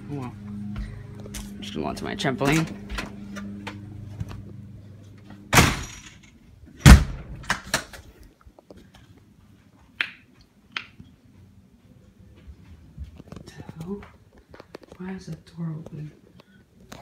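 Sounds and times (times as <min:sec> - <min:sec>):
door slamming shut: 0:05.5 - 0:06.1, 0:06.8 - 0:07.9.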